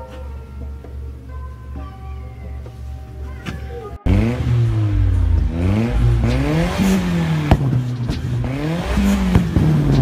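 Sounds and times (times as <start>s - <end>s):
exhaust pop: 3.4s - 10.0s
car engine revving: 4.0s - 10.0s.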